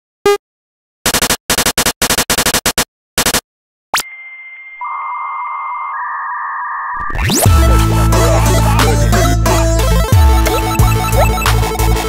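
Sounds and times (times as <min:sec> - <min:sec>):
steady electronic tones: 0:04.8 - 0:12.0
buzzing data noise bursts: 0:05.9 - 0:12.0.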